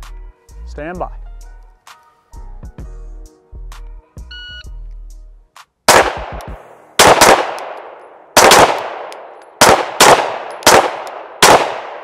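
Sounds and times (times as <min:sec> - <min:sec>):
pistol shots echoing: 0:05.9 - 0:12.0.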